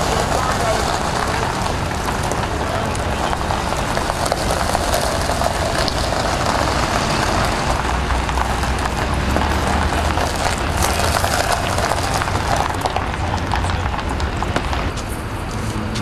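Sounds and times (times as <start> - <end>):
street noise: 0.0 - 16.0
van engine rumble: 0.0 - 16.0.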